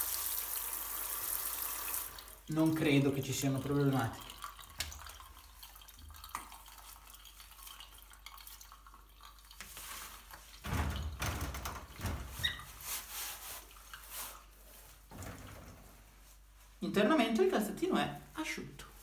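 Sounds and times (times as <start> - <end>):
water dripping: 0.0 - 12.6
wet fabric rustling and rubbing: 12.1 - 15.1.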